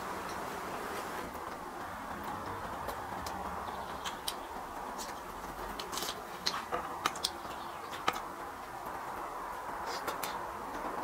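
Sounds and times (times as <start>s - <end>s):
background hiss: 0.0s - 11.0s
sharp clicks and crunches: 1.4s - 9.0s
person chewing food: 2.3s - 8.3s.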